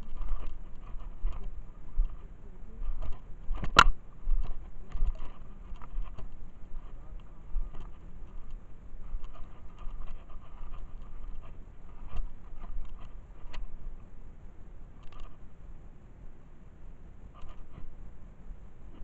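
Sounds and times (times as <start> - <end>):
microphone handling rumble: 0.0 - 13.8.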